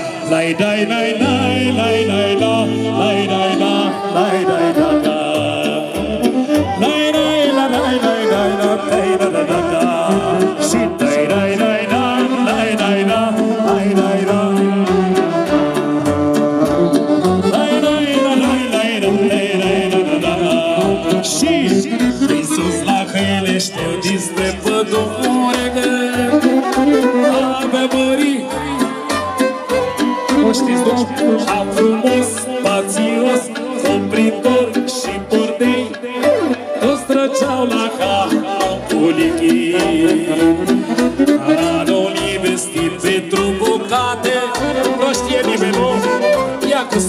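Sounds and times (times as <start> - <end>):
people singing along: 0.0 - 15.6
folk band playing: 0.0 - 47.0
person singing into microphone: 0.0 - 47.0.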